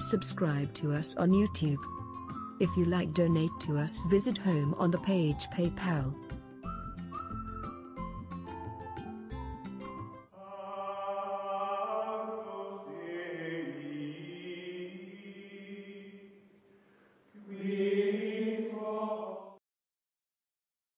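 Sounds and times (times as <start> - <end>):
sustained choral chords: 10.3 - 16.5, 17.4 - 19.6.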